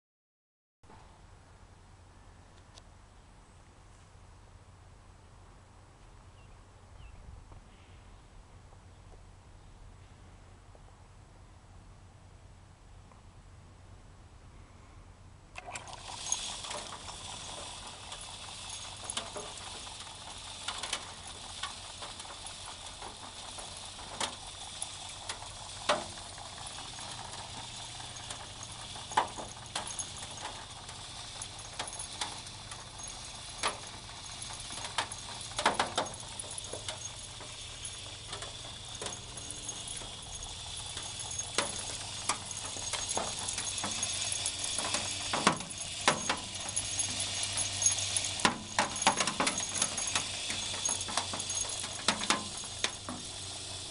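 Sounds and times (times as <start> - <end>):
motor hum: 15.6 - 53.9
stones rattling against mesh: 15.9 - 53.9.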